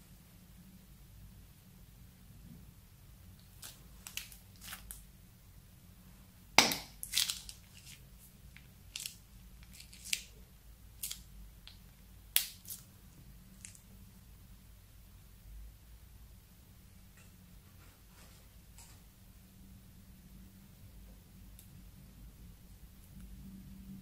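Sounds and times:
slime popping and crackling: 0:03.6 - 0:05.0, 0:06.6 - 0:10.4, 0:11.0 - 0:12.9.

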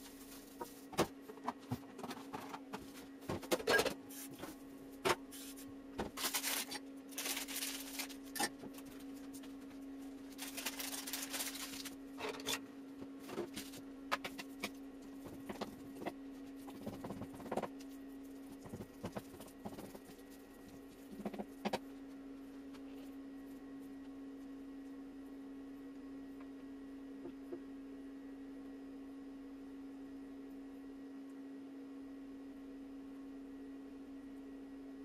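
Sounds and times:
steady hum: 0:00.0 - 0:35.0.

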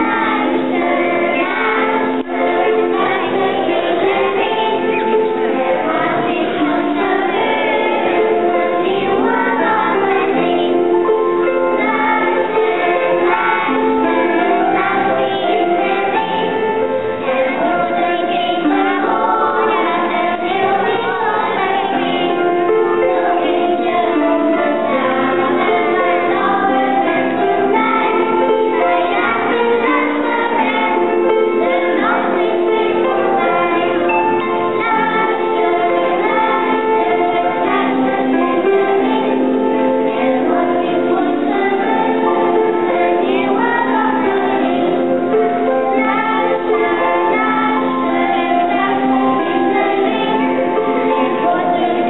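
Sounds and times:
children's choir singing: 0:00.0 - 0:52.0
instrumental accompaniment: 0:00.0 - 0:52.0.

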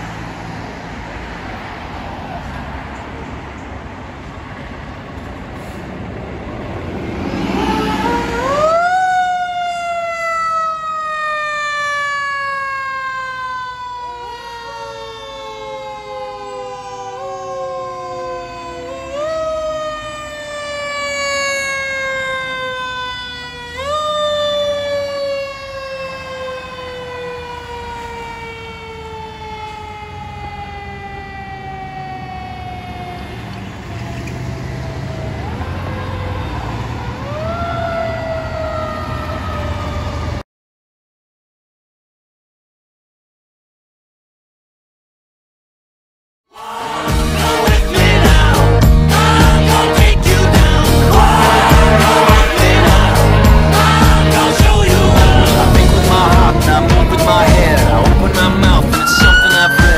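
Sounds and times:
fire engine siren rising and falling: 0:04.5 - 0:40.4, 0:46.5 - 0:59.9
second siren tone: 0:07.3 - 0:33.4, 0:58.5 - 0:59.9.

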